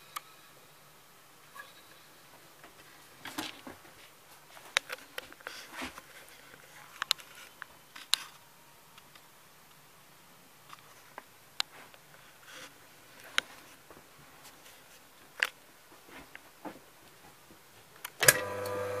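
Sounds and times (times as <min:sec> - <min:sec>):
low room hiss: 0:00.0 - 0:19.0
handling clicks and rustles: 0:02.3 - 0:09.8, 0:10.6 - 0:18.4.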